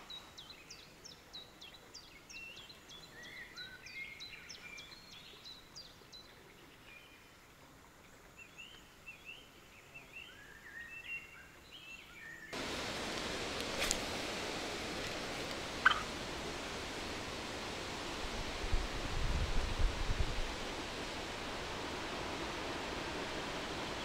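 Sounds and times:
small birds singing: 0.0s - 7.4s, 8.3s - 12.6s, 15.0s - 17.9s.

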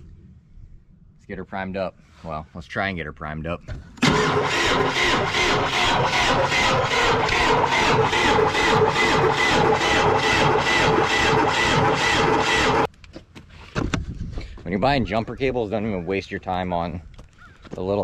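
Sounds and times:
diesel engine cranking on starter: 4.0s - 12.9s.

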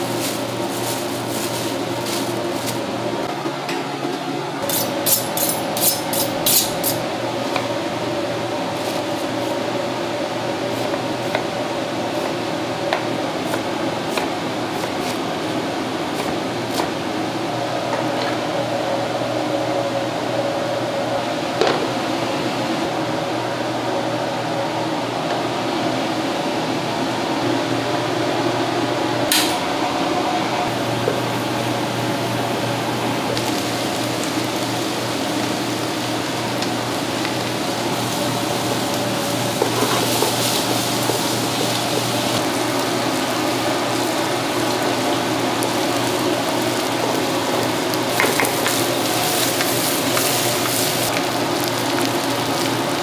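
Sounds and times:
onions frying in a pan: 0.0s - 3.2s, 4.7s - 19.3s, 30.7s - 53.0s
kitchen background hum: 0.0s - 53.0s.

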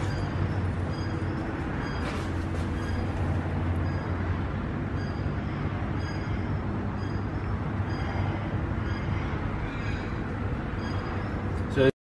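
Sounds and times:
machine humming with low tone: 0.0s - 11.9s.

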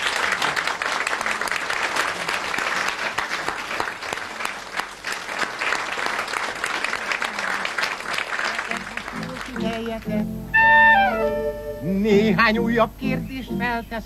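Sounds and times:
audience applauding: 0.0s - 10.2s.

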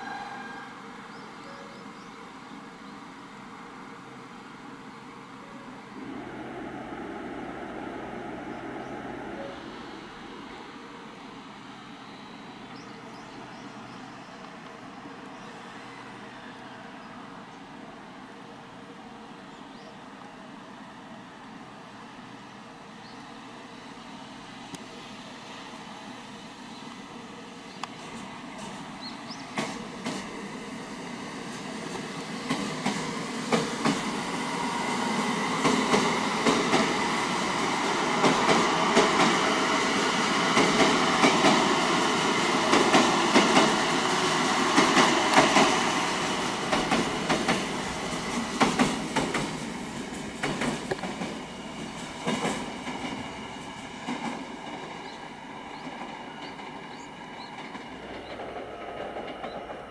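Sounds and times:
train wheels rumbling on rail: 3.2s - 16.4s, 21.6s - 59.9s
wheels clicking over rail joints: 46.6s - 53.2s.

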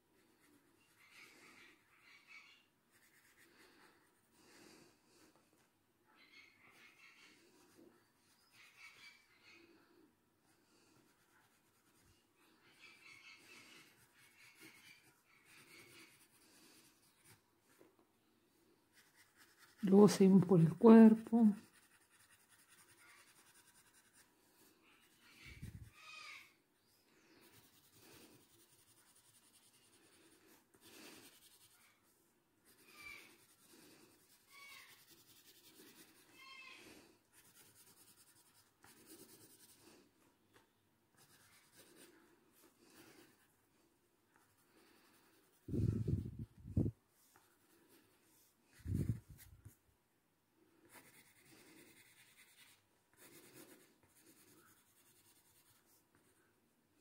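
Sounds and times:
pencil scratching on paper: 0.2s - 4.1s, 10.8s - 17.4s, 18.9s - 26.0s, 27.3s - 40.0s, 41.1s - 43.6s, 50.8s - 56.4s.

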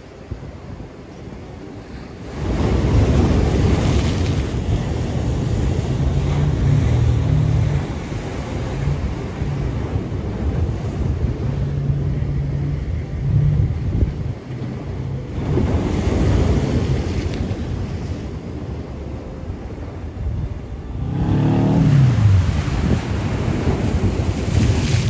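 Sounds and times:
wind rumbling on microphone: 0.0s - 25.0s
surf breaking over rocks: 2.2s - 18.7s, 20.8s - 25.0s.

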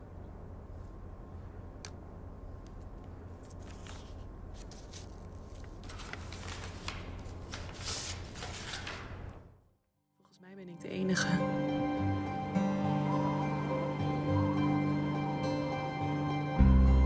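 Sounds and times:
steady low hum: 0.0s - 7.8s
paper rustling and sliding: 3.2s - 9.5s.

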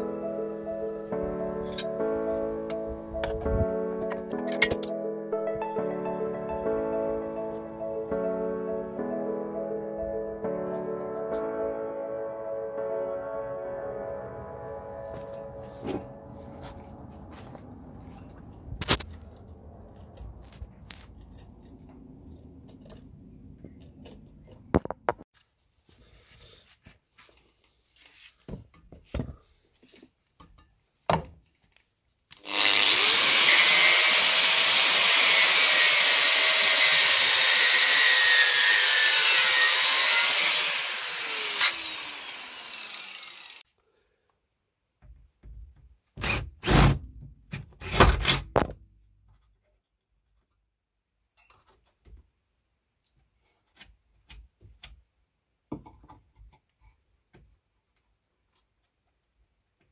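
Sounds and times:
angle grinder whining on metal: 32.4s - 43.6s.

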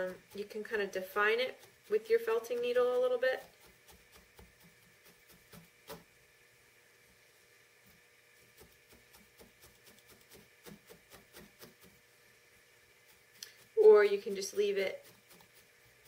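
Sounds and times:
felting needle poking wool: 0.0s - 6.1s, 7.9s - 12.0s.

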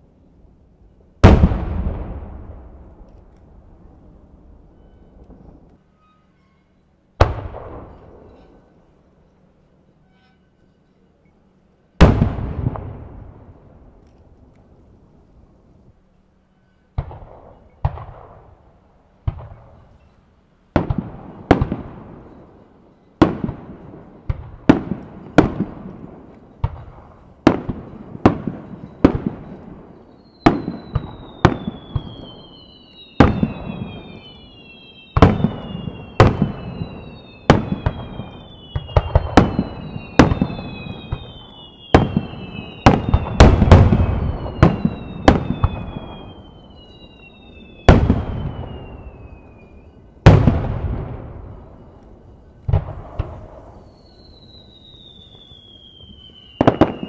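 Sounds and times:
firework shells booming: 1.2s - 3.4s, 35.2s - 47.0s, 47.8s - 51.9s, 55.4s - 57.0s
firework whistles falling: 4.6s - 8.8s, 28.3s - 57.0s.

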